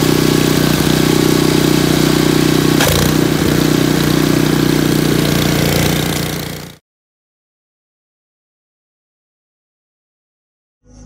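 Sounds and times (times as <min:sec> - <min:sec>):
snow blower engine running: 0:00.0 - 0:06.8.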